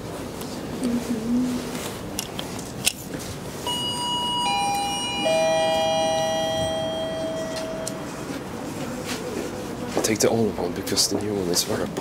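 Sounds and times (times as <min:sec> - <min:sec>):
elevator arrival chime: 0:03.6 - 0:08.6.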